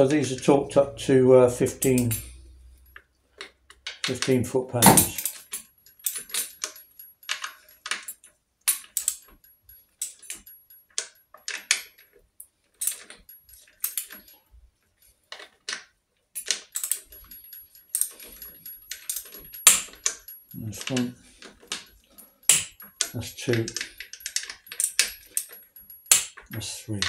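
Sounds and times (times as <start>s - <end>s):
metal socket clinks: 1.7s - 2.4s, 16.4s - 26.5s.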